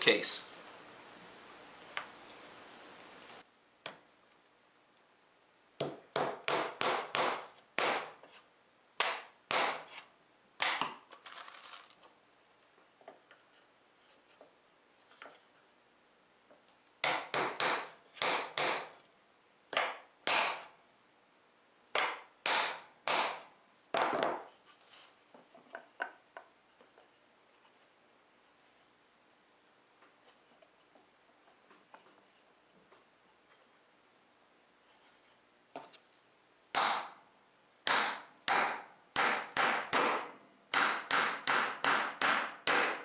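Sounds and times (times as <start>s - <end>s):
hammer tapping nails into wood: 5.8s - 8.1s, 17.0s - 19.0s, 19.7s - 20.7s, 22.0s - 24.5s, 36.8s - 37.2s, 37.8s - 43.0s.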